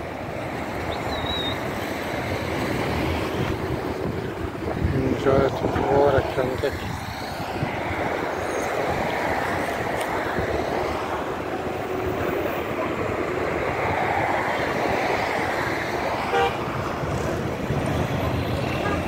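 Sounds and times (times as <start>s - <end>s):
cars driving past: 0.0s - 19.0s
car horn toot: 16.3s - 16.6s.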